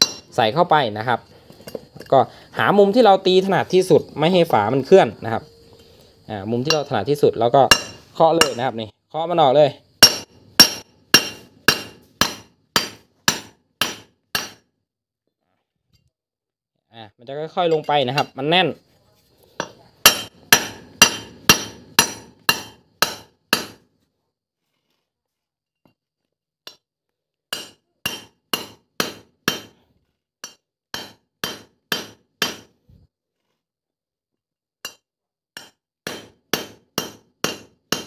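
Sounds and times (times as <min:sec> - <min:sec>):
hammer striking metal punch: 0:00.0 - 0:00.3, 0:07.6 - 0:08.7, 0:10.0 - 0:14.6, 0:19.6 - 0:23.8, 0:27.5 - 0:29.7, 0:30.4 - 0:32.7, 0:35.6 - 0:38.0.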